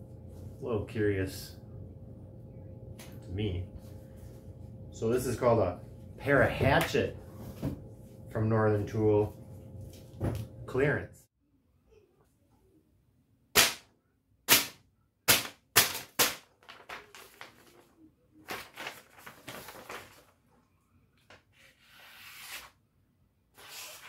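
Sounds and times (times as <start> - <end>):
paper crinkling and tearing: 16.6 - 20.4.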